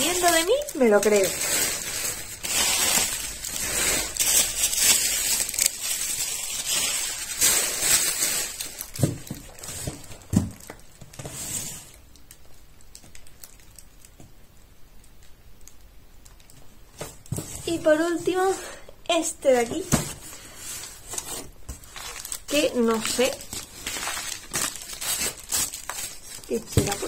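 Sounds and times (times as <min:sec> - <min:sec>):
plastic packaging crinkling: 0:00.0 - 0:27.0.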